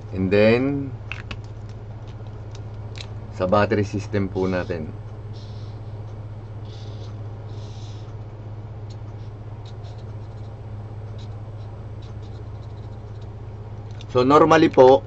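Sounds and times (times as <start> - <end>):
steady low hum: 0.0 - 15.0
marker scratching on paper: 6.6 - 8.1, 9.2 - 13.4.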